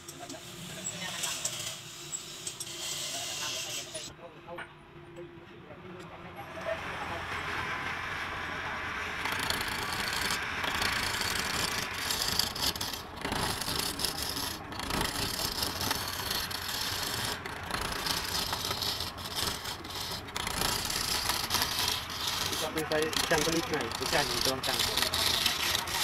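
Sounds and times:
gouge scraping spinning wood: 0.8 - 4.1, 9.2 - 26.0
lathe motor running: 6.7 - 26.0.

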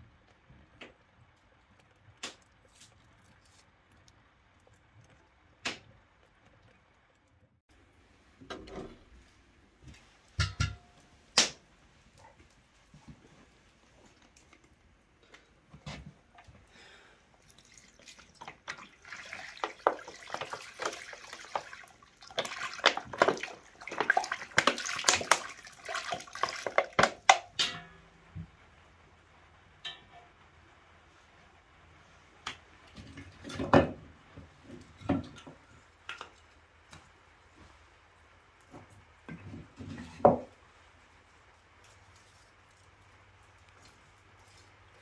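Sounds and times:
liquid glugging into a pot: 17.4 - 27.8.

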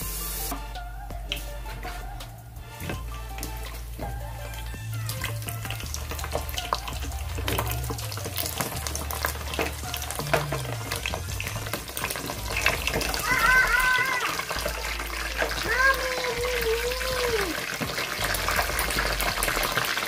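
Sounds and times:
meat deep-frying in oil: 3.3 - 20.0.

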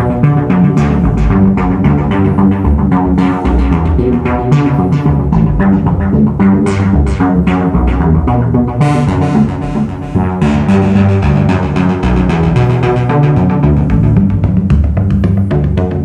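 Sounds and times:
low synth bass: 0.0 - 16.0
modular synthesizer notes: 0.0 - 16.0.

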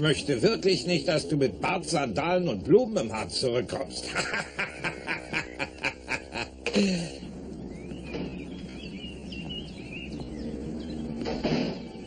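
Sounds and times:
steady background hum: 0.0 - 12.0
man laughing heartily: 4.0 - 7.3.

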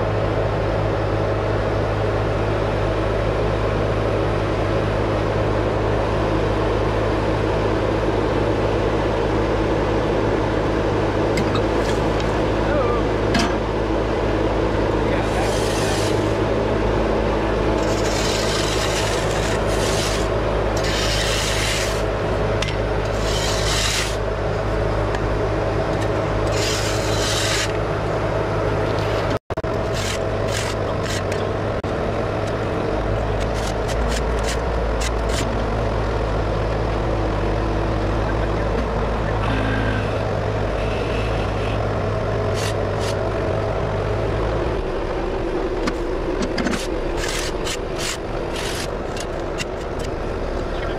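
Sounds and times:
diesel engine running: 0.0 - 50.9
auger digging with clicks and knocks: 15.2 - 16.4, 17.7 - 24.3, 25.1 - 27.8, 28.9 - 31.6, 32.4 - 35.7, 42.4 - 43.3, 45.8 - 50.9
shovel scraping through dirt: 15.2 - 16.4, 17.8 - 22.1, 23.0 - 24.3, 26.0 - 27.8, 46.6 - 50.1.

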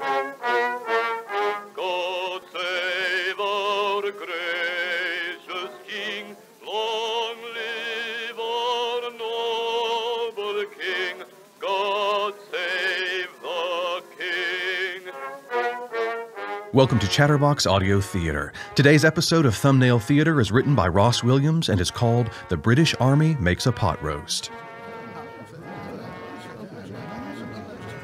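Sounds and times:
operatic-style melody with vibrato: 13.8 - 28.0.

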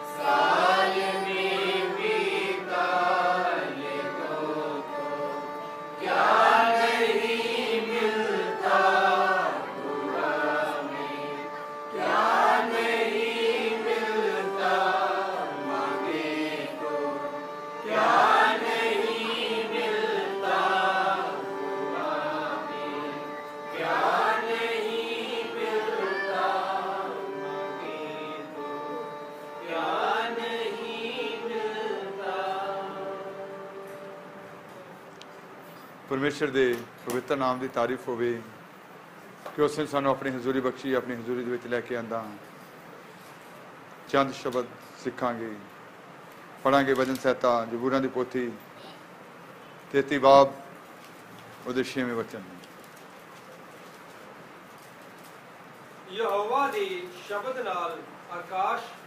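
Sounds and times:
worship music with singing: 0.0 - 36.8.

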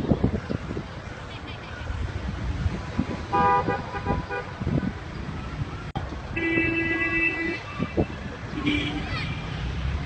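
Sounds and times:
traffic rumble: 0.0 - 10.0
wind: 0.0 - 10.0
vehicle horns tooting: 3.3 - 4.6, 6.3 - 9.6.

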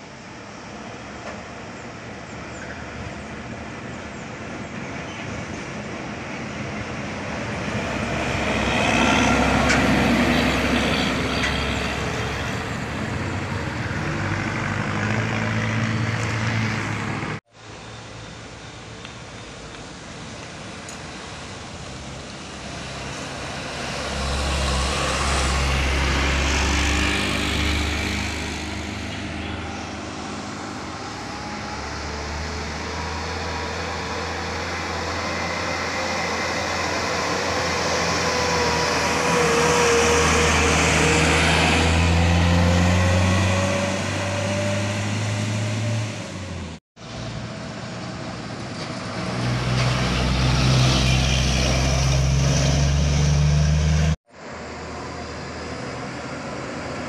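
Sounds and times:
trucks passing close by: 0.0 - 57.0.

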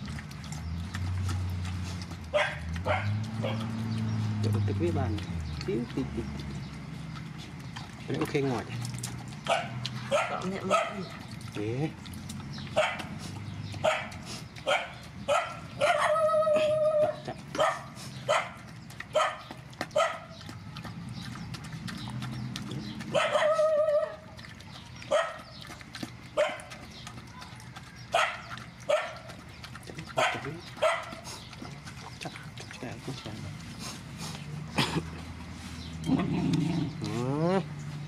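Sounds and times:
puppy yelping and crying: 14.7 - 20.2, 23.1 - 24.4.

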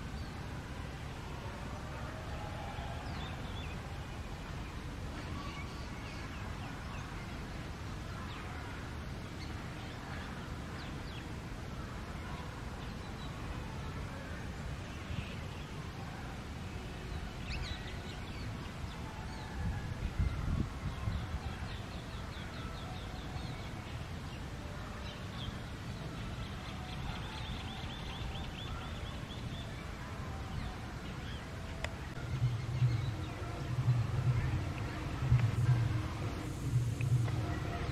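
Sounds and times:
birds chirping: 20.2 - 37.9
steady low rumble: 32.1 - 37.9.

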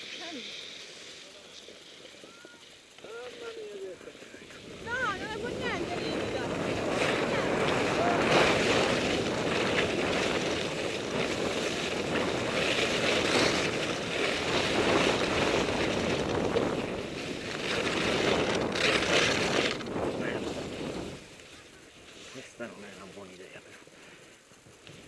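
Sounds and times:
skis scraping on snow: 0.0 - 25.0
wind rushing over microphone: 4.2 - 21.8.

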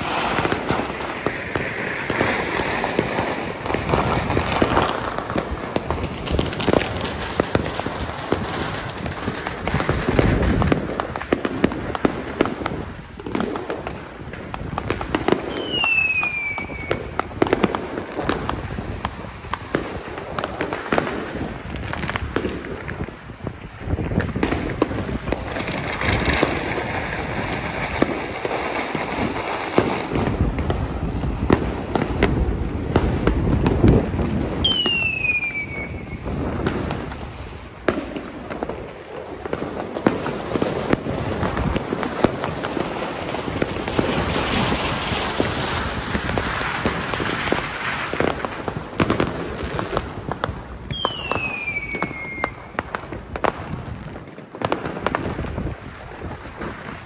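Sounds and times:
fireworks bangs and crackling: 0.0 - 57.0
falling firework whistle: 15.3 - 17.2, 34.6 - 36.4, 50.9 - 52.8.

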